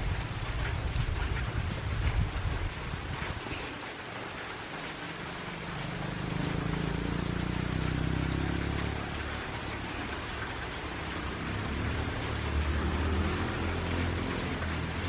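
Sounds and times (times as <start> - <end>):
engine low hum: 4.8 - 15.0.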